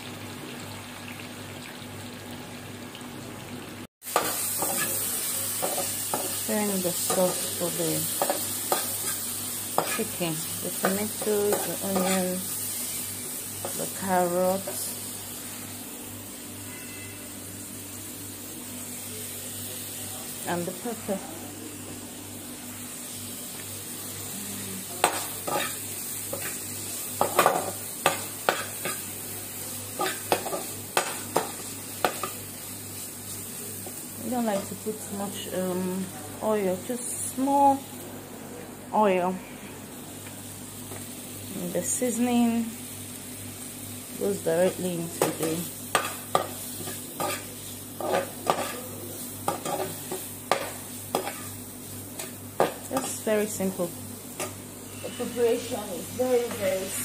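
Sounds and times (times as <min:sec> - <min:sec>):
vegetables sizzling in a frying pan: 0:00.0 - 0:57.0
metal spoon scraping frying pan: 0:11.2 - 0:12.4, 0:25.0 - 0:26.6, 0:45.9 - 0:48.8
spoon scraping and knocking a pan: 0:45.2 - 0:48.8, 0:49.5 - 0:51.6.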